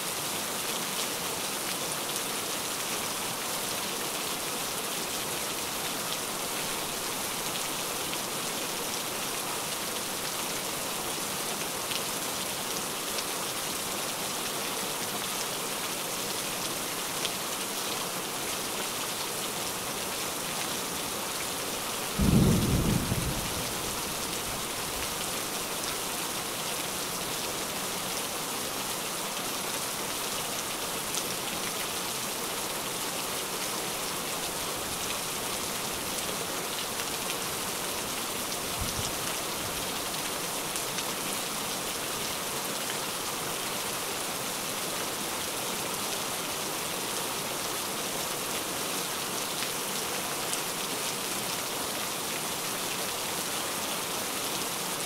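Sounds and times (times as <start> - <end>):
steady rain: 0.0 - 55.0
low thunder rumble: 22.2 - 24.1.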